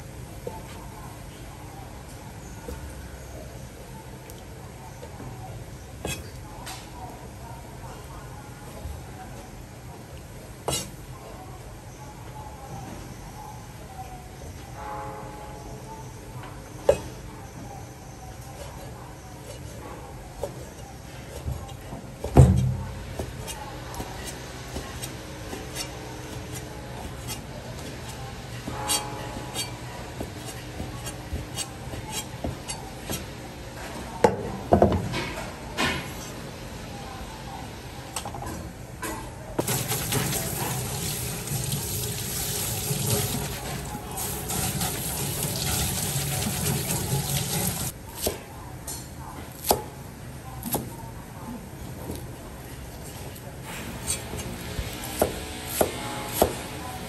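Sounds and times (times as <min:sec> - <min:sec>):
tap water running into sink: 0:39.6 - 0:47.9.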